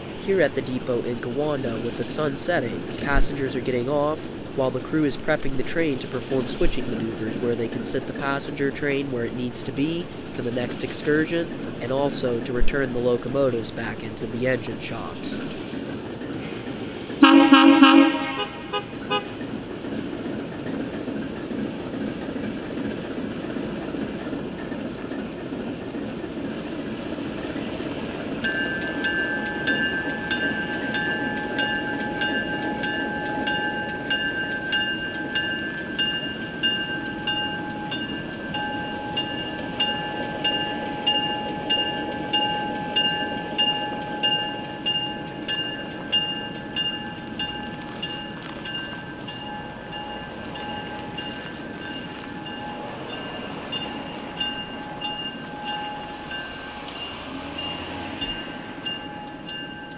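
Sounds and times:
locomotive bell ringing: 0.0 - 15.6, 28.4 - 59.9
diesel locomotives idling: 0.0 - 59.9
locomotive horn toot: 17.2 - 19.4.

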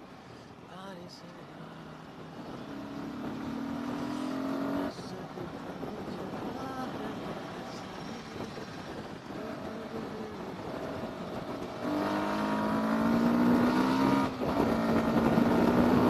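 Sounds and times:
motorcycle engine accelerating: 2.7 - 5.1, 9.4 - 16.0.

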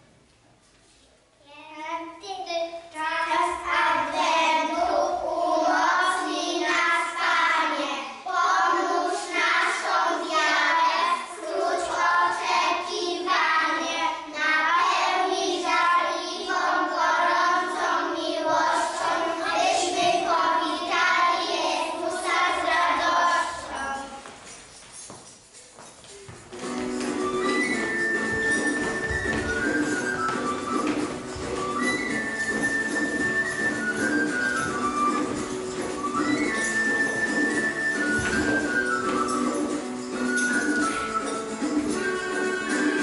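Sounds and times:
young children singing: 2.9 - 24.5.

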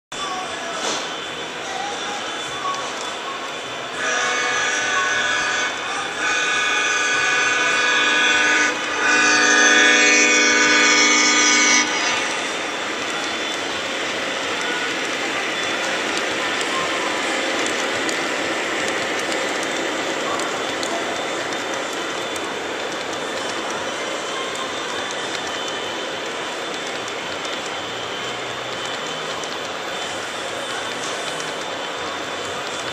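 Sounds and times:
model train rolling on track: 0.2 - 32.9
model train horn blasts: 3.9 - 12.4.

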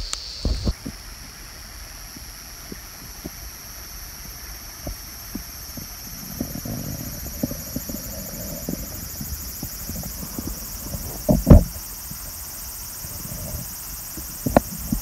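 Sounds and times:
cicadas chorus: 0.0 - 15.0
soft low knocks: 6.2 - 11.8
loud thump: 11.3 - 11.8.

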